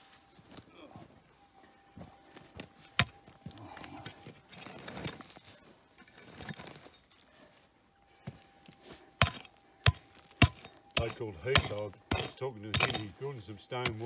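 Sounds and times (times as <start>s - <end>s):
shovel scraping soil and gravel: 2.4s - 7.6s, 8.7s - 14.0s
digging tool striking hard ground: 2.9s - 5.2s, 9.2s - 14.0s.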